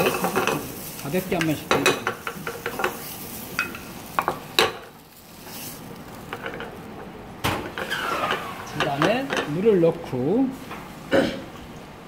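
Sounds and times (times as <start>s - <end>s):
spatula scraping a pan: 0.0s - 6.7s, 7.6s - 9.4s
tomato paste sizzling in a pan: 0.0s - 9.0s.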